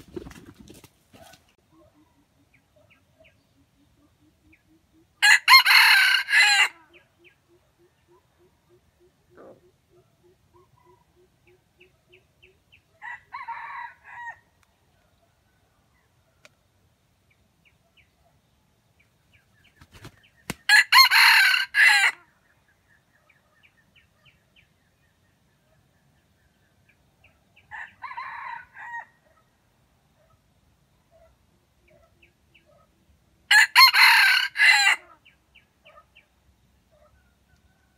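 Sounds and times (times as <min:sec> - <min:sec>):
roosters crowing: 0:05.2 - 0:06.9, 0:13.0 - 0:14.4, 0:20.7 - 0:22.2, 0:27.7 - 0:29.2, 0:33.5 - 0:35.2.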